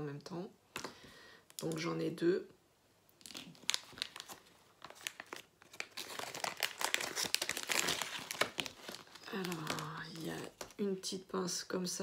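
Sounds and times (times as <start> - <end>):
plastic packaging crinkling: 3.2 - 10.8.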